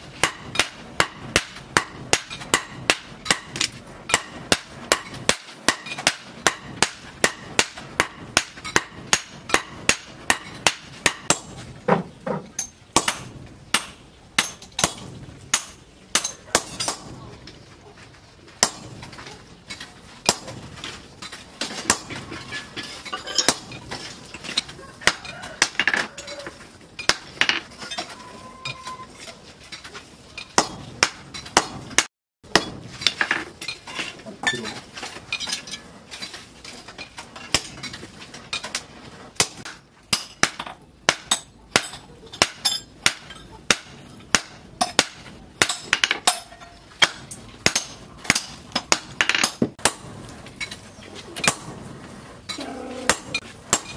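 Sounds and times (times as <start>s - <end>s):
hammer striking hot steel on anvil: 0.0s - 11.9s, 12.6s - 17.4s, 18.6s - 19.2s, 20.2s - 20.8s, 21.8s - 22.4s, 23.3s - 24.0s, 27.0s - 27.6s, 30.6s - 33.4s, 37.5s - 37.8s, 39.4s - 50.3s, 51.4s - 51.9s, 53.1s - 53.9s.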